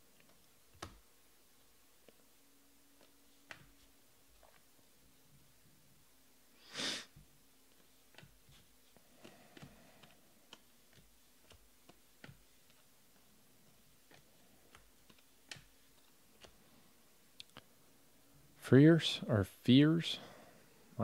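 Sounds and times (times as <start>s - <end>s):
short breath: 20.2s - 20.8s.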